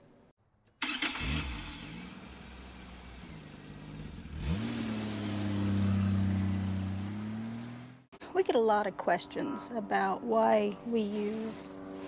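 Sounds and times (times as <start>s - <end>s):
car engine starting and revving: 0.8s - 8.1s.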